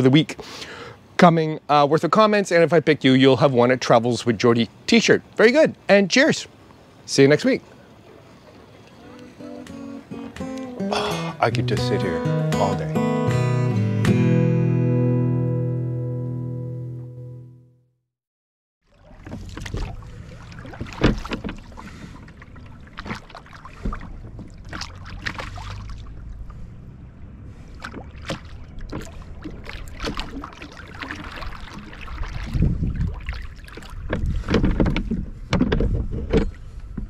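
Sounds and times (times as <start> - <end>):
water splashing: 6.8 - 11.7, 18.8 - 35.2
oars knocking in oarlocks: 19.2 - 25.6, 33.7 - 37.0.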